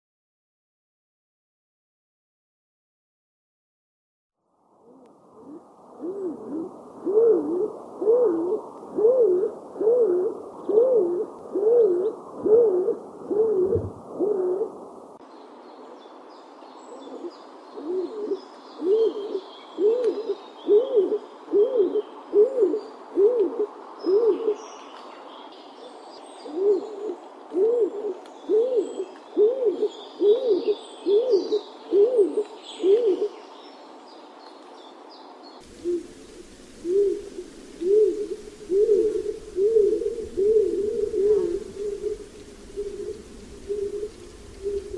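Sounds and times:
dove cooing: 0:04.8 - 0:14.8, 0:17.0 - 0:24.6, 0:26.4 - 0:33.4, 0:35.7 - 0:44.9.

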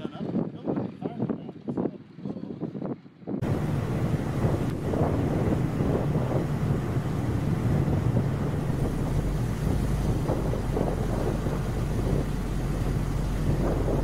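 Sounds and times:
wind buffeting microphone: 0:00.0 - 0:14.0
jet airliner drone: 0:03.4 - 0:14.0.

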